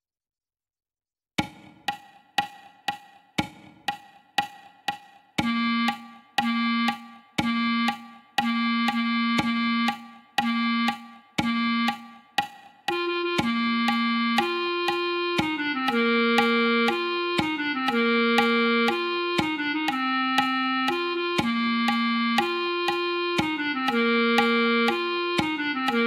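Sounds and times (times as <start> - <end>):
metronome clicking: 1.4 - 26.0
synthesized clarinet note: 5.4 - 12.2, 12.9 - 26.0.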